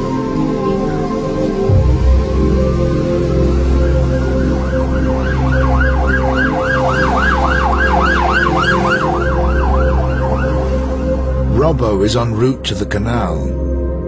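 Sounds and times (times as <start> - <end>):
steady low drone: 0.0 - 14.0
siren yelping: 0.3 - 11.5.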